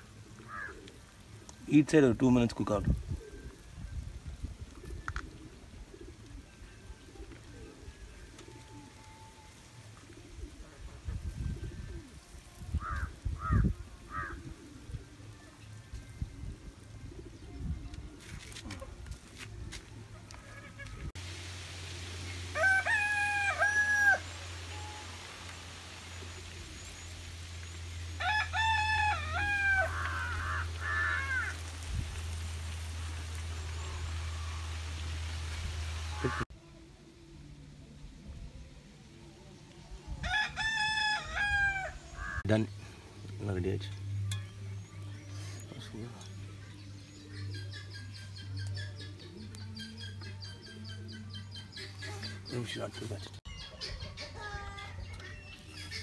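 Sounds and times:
dove cooing: 0:00.0 - 0:01.7, 0:03.0 - 0:21.1
rooster crowing: 0:22.5 - 0:25.1, 0:28.2 - 0:31.6, 0:40.2 - 0:42.4.

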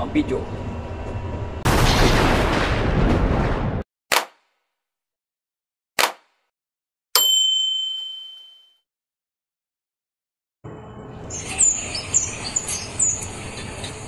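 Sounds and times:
bell-like notification ding: 0:07.2 - 0:08.8
small birds chirping: 0:11.3 - 0:14.0.

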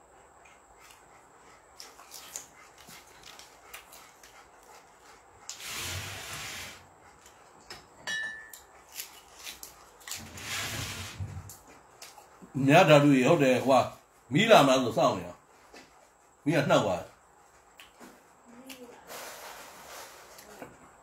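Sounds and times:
chewing clicks: 0:12.0 - 0:12.3, 0:17.7 - 0:18.0
lip smacks: 0:17.7 - 0:18.0.

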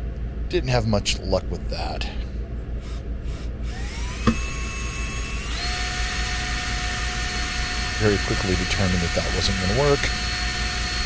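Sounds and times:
cordless drill whining: 0:02.8 - 0:11.0.

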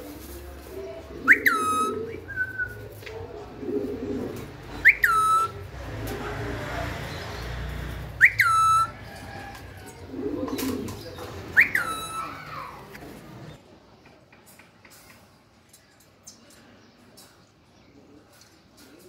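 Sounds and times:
parakeet whistled call: 0:04.9 - 0:05.5, 0:08.2 - 0:09.0, 0:11.6 - 0:12.4.

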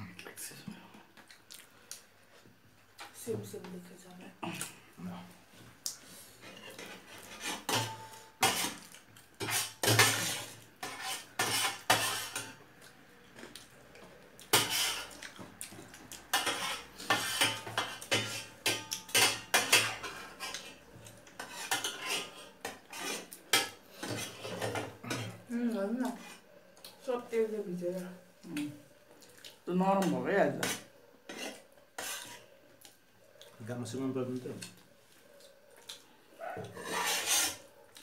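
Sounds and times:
spoons scraping metal plates: 0:06.4 - 0:12.6, 0:14.5 - 0:15.1, 0:16.3 - 0:20.8, 0:21.4 - 0:25.4, 0:30.1 - 0:32.5, 0:36.7 - 0:37.6.

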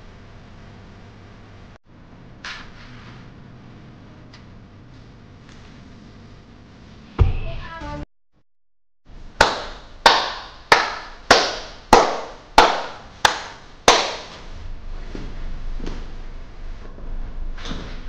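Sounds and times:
dance music: 0:07.2 - 0:08.0
hand claps: 0:09.4 - 0:14.4.

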